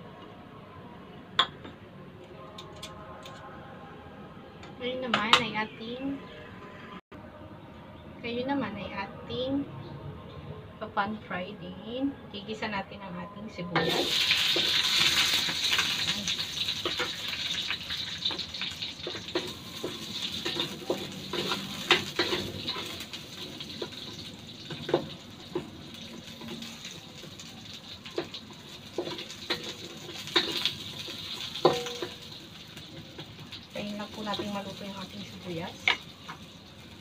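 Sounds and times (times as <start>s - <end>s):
onion sizzling in hot oil: 13.8s - 37.0s
wooden spatula scraping a wok: 19.1s - 24.2s.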